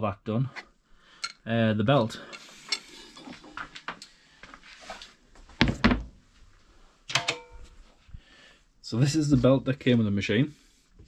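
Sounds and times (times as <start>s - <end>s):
metal clank with ring: 7.2s - 7.6s.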